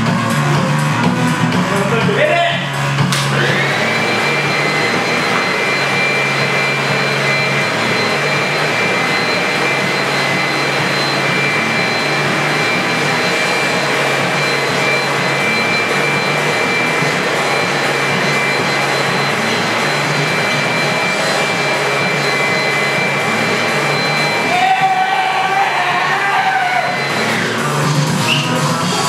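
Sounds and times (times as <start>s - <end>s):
high-pitched fan whine: 0.3s - 29.0s
leaf blower air rush: 3.2s - 24.7s.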